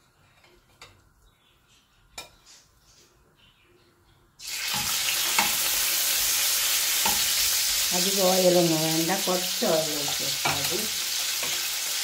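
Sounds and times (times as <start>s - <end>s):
chicken sizzling in hot oil: 4.4s - 12.0s.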